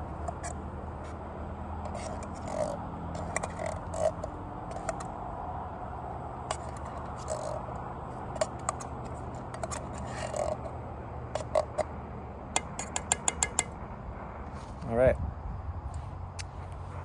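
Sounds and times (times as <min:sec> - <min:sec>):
metal spoon scraping tin can: 0:01.8 - 0:05.1, 0:06.5 - 0:07.6, 0:08.4 - 0:10.7, 0:11.3 - 0:11.9.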